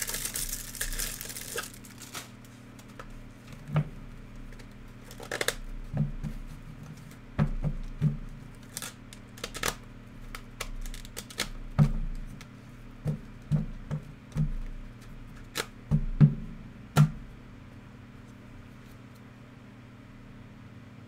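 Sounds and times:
cards in plastic sleeves tapping: 0.0 - 2.2.

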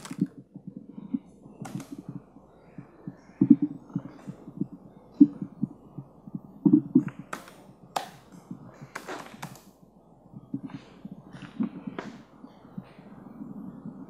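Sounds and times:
typing on laptop keyboard: 0.0 - 0.7, 1.6 - 2.2, 7.0 - 9.7.

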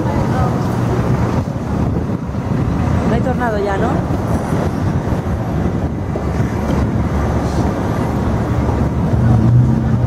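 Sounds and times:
low rumble of traffic: 0.0 - 10.0.

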